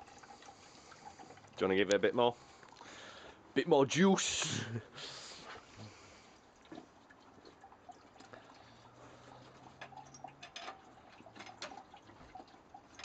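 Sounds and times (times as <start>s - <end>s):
juice dripping: 0.0s - 13.0s.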